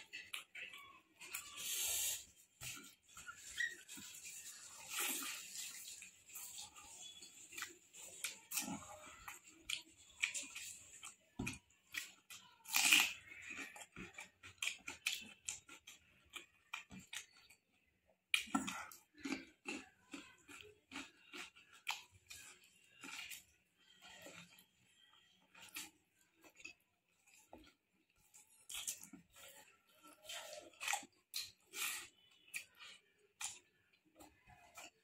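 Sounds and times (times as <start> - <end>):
chewing and wet mouth smacks: 7.4 - 23.4, 25.5 - 29.7.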